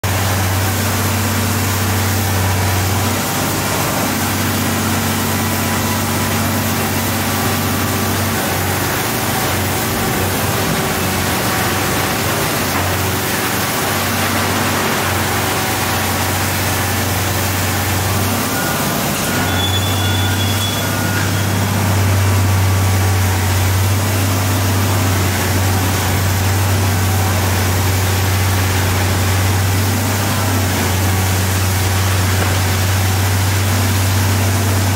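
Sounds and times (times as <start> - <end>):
excavator diesel engine humming: 0.0 - 34.9
machine and demolition noise: 0.0 - 34.9.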